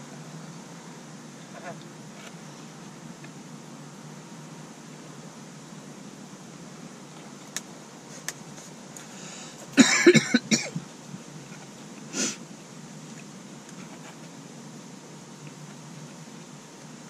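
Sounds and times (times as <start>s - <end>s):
person coughing: 9.8s - 10.8s.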